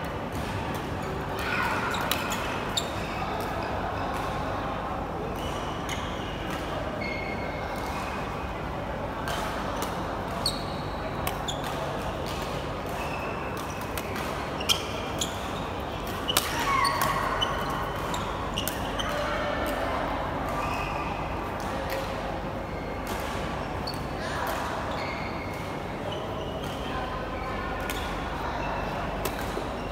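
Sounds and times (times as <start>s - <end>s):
sports hall background noise: 0.0s - 29.9s
shoe squeaks on court floor: 7.0s - 7.5s, 10.4s - 11.7s, 14.6s - 19.2s, 24.9s - 26.6s.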